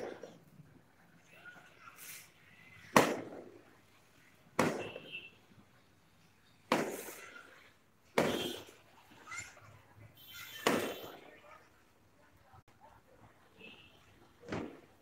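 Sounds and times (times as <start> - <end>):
firecrackers banging: 0.0 - 0.5, 1.6 - 5.6, 6.6 - 9.2, 10.5 - 11.4, 14.3 - 15.0.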